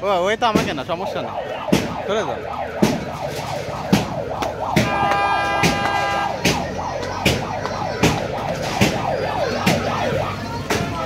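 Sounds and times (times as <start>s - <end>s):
steady horn-like tone: 4.8s - 6.4s.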